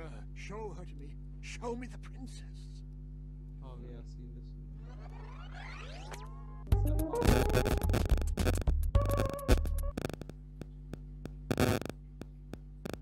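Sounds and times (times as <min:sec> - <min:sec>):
electronic music with bass beat: 0:06.7 - 0:10.3
sharp clicks: 0:08.0 - 0:13.0.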